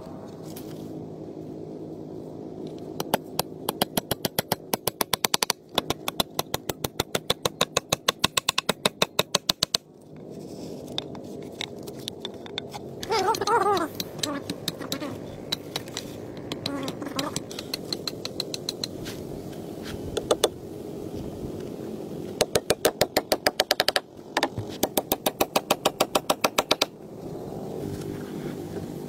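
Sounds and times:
low drone: 0:00.0 - 0:05.7, 0:09.8 - 0:25.4, 0:26.7 - 0:29.0
hammer driving nails: 0:03.0 - 0:09.8, 0:13.9 - 0:19.0, 0:22.4 - 0:26.9.

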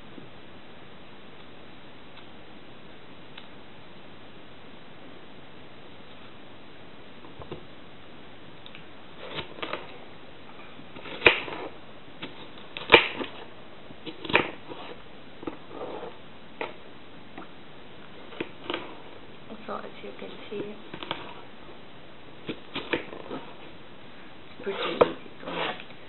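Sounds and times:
knife on wooden cutting board: 0:24.7 - 0:25.9.

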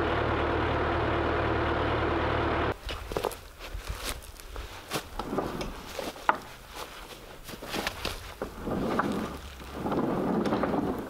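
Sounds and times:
wooden carriage knocks and clicks: 0:07.7 - 0:11.0.

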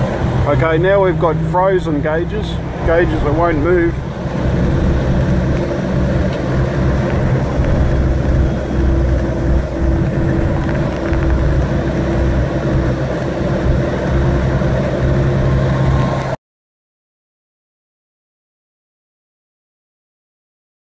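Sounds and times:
road noise: 0:00.0 - 0:16.4
steady higher tone: 0:00.0 - 0:16.4
truck diesel engine drone: 0:00.0 - 0:16.4.

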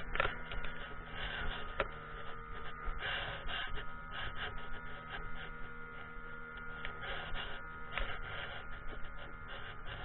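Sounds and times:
outboard motor droning: 0:00.0 - 0:10.0.

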